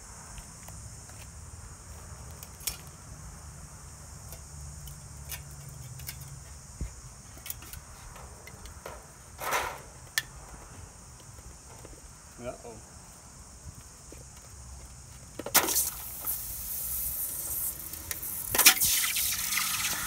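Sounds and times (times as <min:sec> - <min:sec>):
insect drone: 0:00.0 - 0:20.0
metal pans clicking on asphalt: 0:04.3 - 0:06.4.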